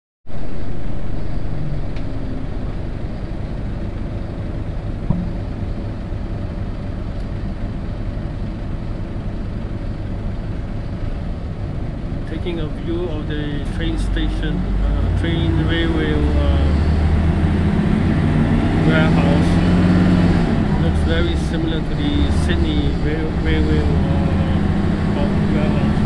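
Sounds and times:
vehicle engine and tyre noise: 0.3 - 26.0.

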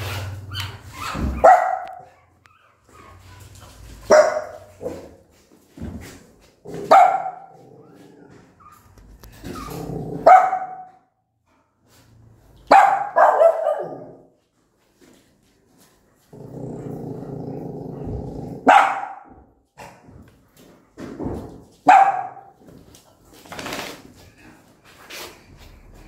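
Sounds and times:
dog barking sharply: 1.4 - 2.1, 10.2 - 10.9, 12.7 - 14.1, 18.7 - 19.3, 21.9 - 22.5
dog growling: 7.5 - 8.6, 9.4 - 10.3, 16.3 - 18.7.

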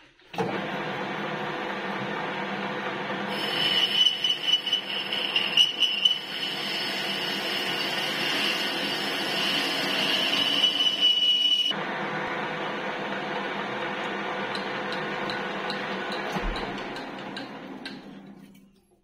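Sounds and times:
lathe cutting whine: 1.6 - 16.2.

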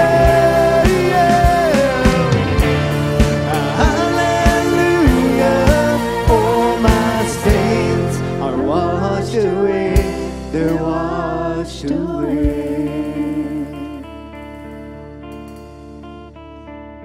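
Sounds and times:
heavy drum and bass hits: 0.0 - 8.4, 10.0 - 10.8
voices singing: 0.0 - 14.4
worship band playing: 0.0 - 16.8
picked guitar notes: 0.0 - 17.0.

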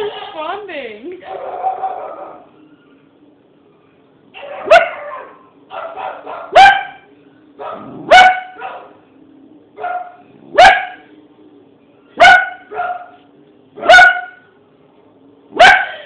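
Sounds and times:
dog barking: 1.2 - 2.5, 4.3 - 9.0, 9.8 - 11.1, 12.2 - 13.2, 13.8 - 14.5, 15.5 - 16.0.

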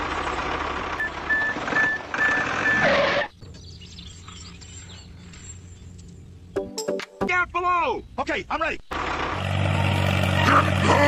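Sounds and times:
tractor engine running: 0.0 - 6.6, 8.9 - 11.0.

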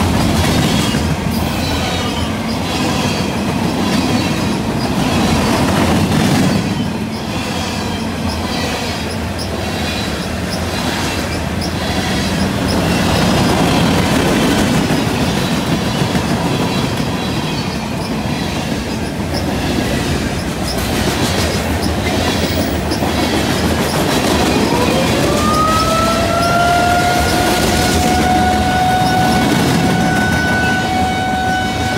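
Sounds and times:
wheels clacking over rail joints: 0.0 - 31.9
warning siren winding up: 24.6 - 31.9.

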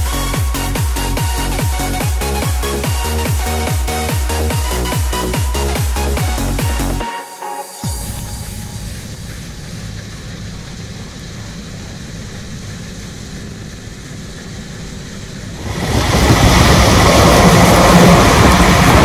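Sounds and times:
combine harvester running close: 0.0 - 7.0, 7.8 - 19.0
low engine rumble: 0.0 - 7.0, 7.9 - 19.0
constant hum: 7.8 - 19.0.

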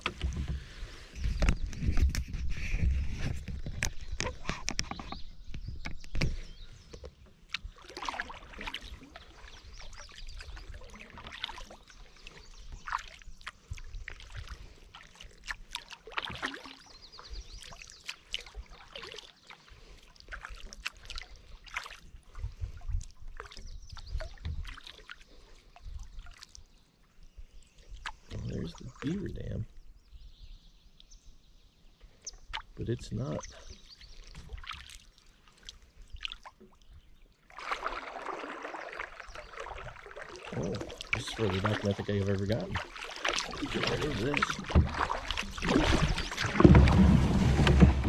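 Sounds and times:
kayak paddle splashing: 0.0 - 28.3, 33.4 - 48.0
water trickling: 7.5 - 22.0, 32.6 - 48.0.

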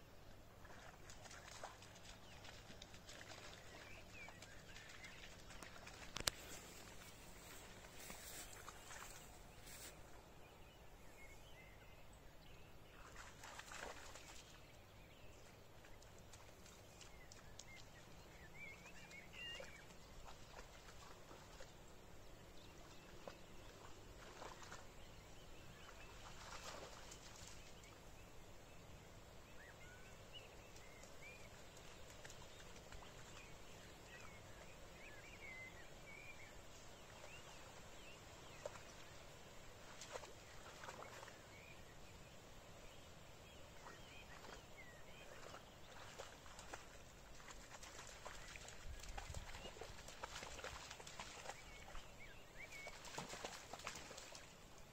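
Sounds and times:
small birds chirping faintly: 0.0 - 54.9
dog splashing through mud: 0.6 - 9.4, 13.0 - 14.6, 18.8 - 21.8, 22.8 - 28.0, 37.0 - 41.9, 43.8 - 54.9.

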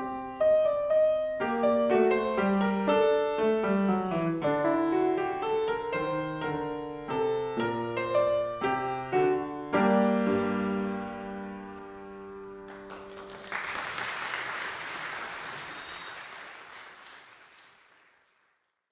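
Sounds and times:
grand piano playing: 0.0 - 13.5
audience applause: 12.7 - 18.8.

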